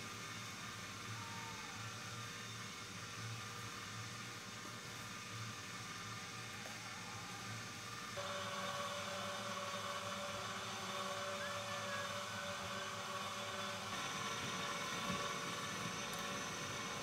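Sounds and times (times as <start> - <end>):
electric cement mixer running: 8.1 - 17.0.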